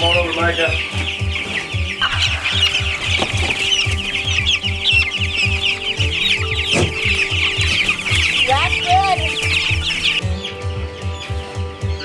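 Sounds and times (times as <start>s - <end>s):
chicks peeping: 0.0s - 12.0s
low pulsing throb: 1.2s - 10.4s.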